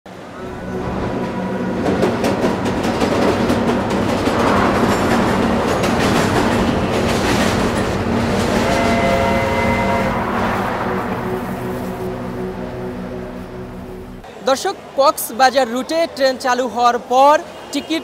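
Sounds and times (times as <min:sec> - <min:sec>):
train clattering over rails: 0:00.1 - 0:12.7
steady tones: 0:00.1 - 0:14.4.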